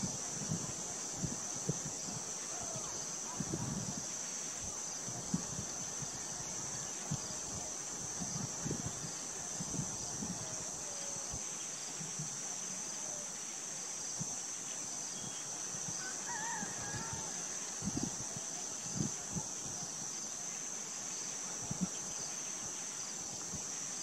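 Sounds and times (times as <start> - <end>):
insect chorus droning: 0.0 - 24.0.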